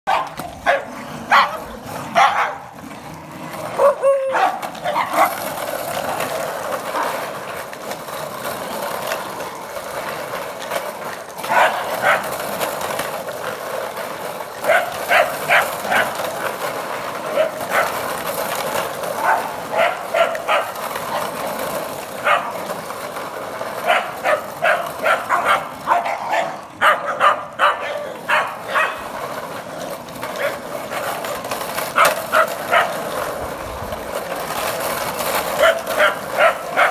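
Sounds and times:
plastic trolley rolling on concrete: 0.0 - 36.9
small dogs yapping: 0.1 - 2.6, 3.7 - 5.4, 23.8 - 29.0, 35.6 - 36.9.

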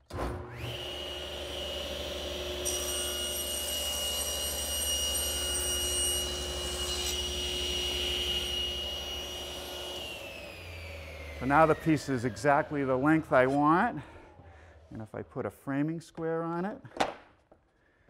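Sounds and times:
table saw whining: 0.0 - 14.6
saw cutting wood panel: 0.1 - 13.9.

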